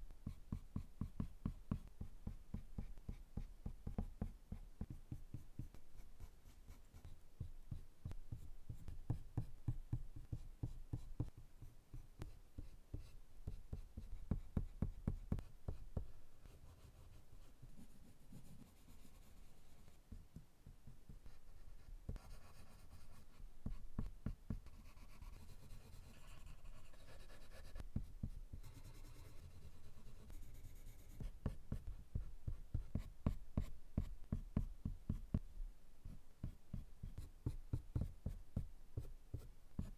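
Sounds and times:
pencil scratching on paper: 16.4s - 20.0s, 21.2s - 35.2s.

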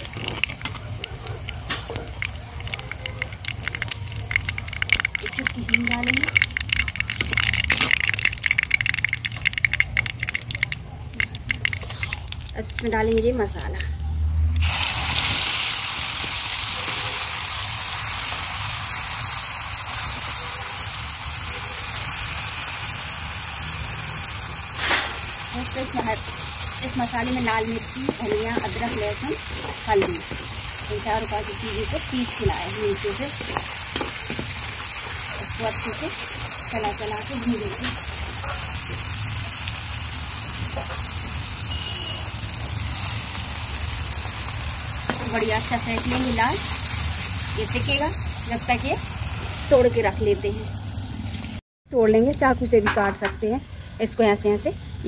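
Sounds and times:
liquid poured into pan: 0.0s - 12.8s, 24.3s - 45.3s
paste sizzling in hot oil: 0.0s - 13.7s, 14.6s - 51.6s.

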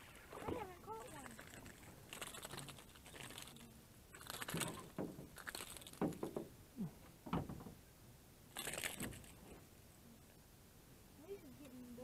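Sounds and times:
knocks in aluminum boat: 6.0s - 6.5s, 7.2s - 7.8s.

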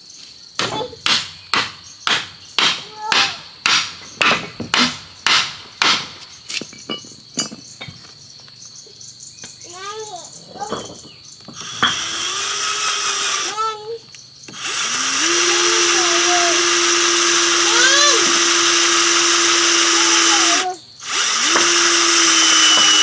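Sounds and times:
high insect drone: 0.0s - 23.0s
hammer striking wood: 0.6s - 6.3s, 21.2s - 23.0s.

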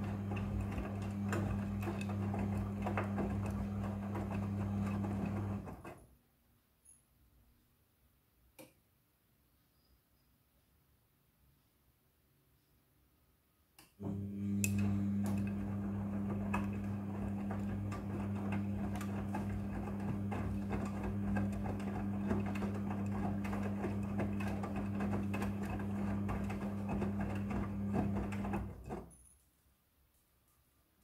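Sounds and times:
washing machine drum motor hum: 0.0s - 6.0s, 14.0s - 29.1s.

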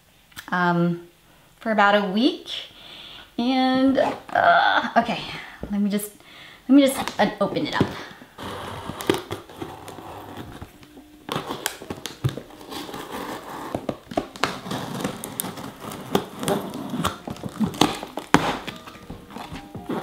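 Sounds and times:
tape crinkling: 6.9s - 20.0s
box cutter slicing packing tape: 8.4s - 10.6s, 11.3s - 20.0s.

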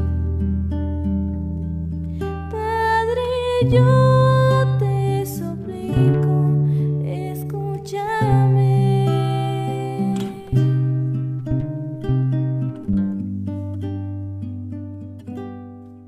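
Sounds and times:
instrumental song with guitar and bass: 0.0s - 16.0s.

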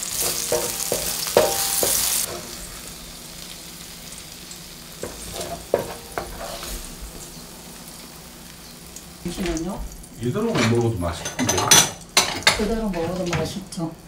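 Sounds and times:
garlic sizzling in oil: 0.0s - 14.0s.

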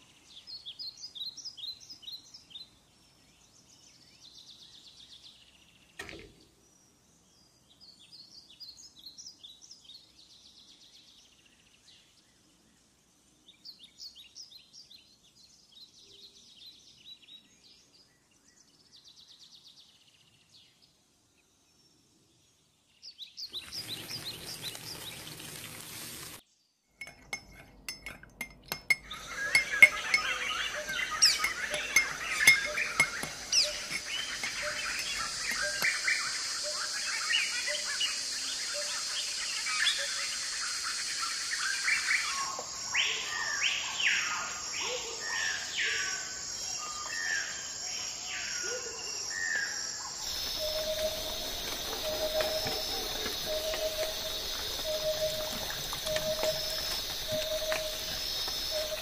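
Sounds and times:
birds chirping: 23.2s - 26.2s, 27.0s - 59.0s
spoon clinking in steel bowl: 27.0s - 35.9s.

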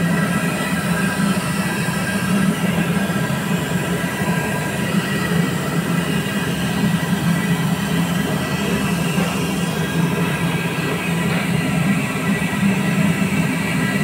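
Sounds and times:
low mechanical drone: 0.0s - 14.0s.

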